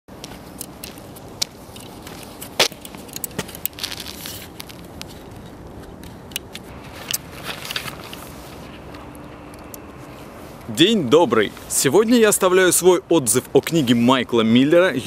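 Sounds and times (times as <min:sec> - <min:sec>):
footsteps crunching on roofing: 0:00.1 - 0:09.1.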